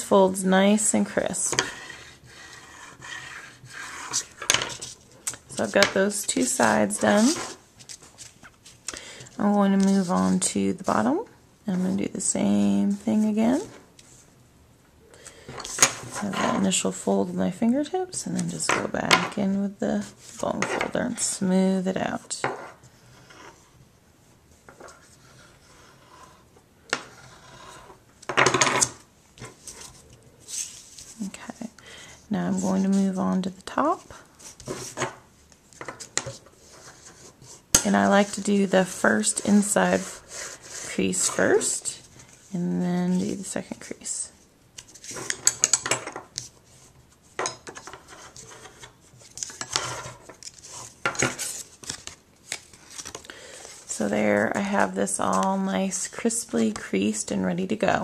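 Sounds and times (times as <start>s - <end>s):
bone folder scraping paper: 1.6s - 8.6s
paper being folded: 47.8s - 53.9s.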